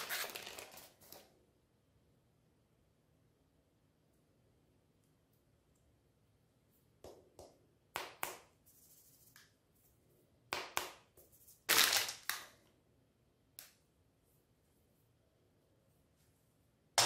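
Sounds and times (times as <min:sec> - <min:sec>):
plastic wrappers crinkling: 0:00.0 - 0:01.2, 0:11.7 - 0:12.5.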